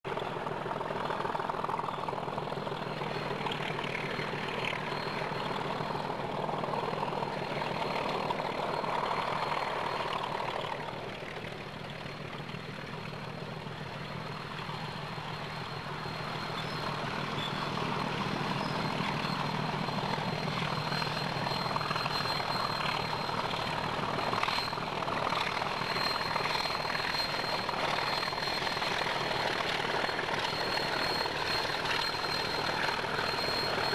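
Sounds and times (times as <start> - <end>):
diesel locomotive engines droning: 0.0 - 33.9.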